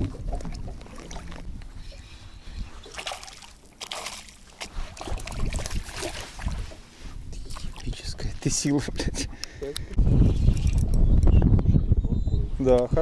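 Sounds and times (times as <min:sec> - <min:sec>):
fish splashing in water: 0:02.8 - 0:06.6.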